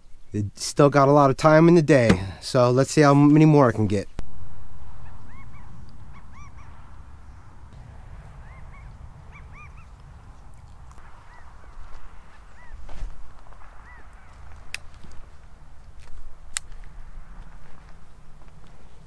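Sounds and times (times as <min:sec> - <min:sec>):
wind rumble on microphone: 0:04.2 - 0:19.0
quail calling: 0:04.9 - 0:07.6, 0:08.4 - 0:10.1, 0:10.9 - 0:13.0, 0:13.8 - 0:14.5.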